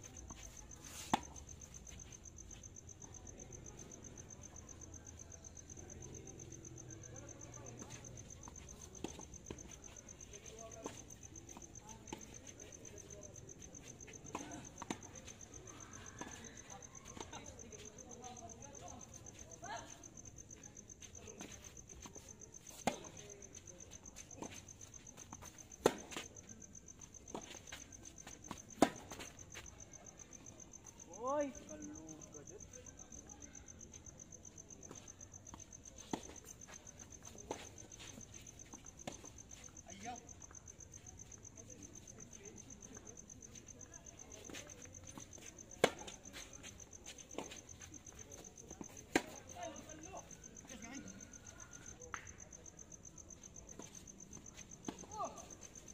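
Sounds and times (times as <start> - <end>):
insects chirping: 0.0 - 55.9
tennis balls struck by rackets: 25.8 - 26.2, 28.8 - 29.2.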